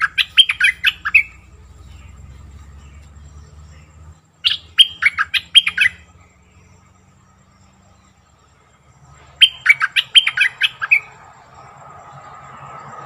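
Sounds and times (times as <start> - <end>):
bird whistling song: 0.0 - 6.9, 9.4 - 11.2.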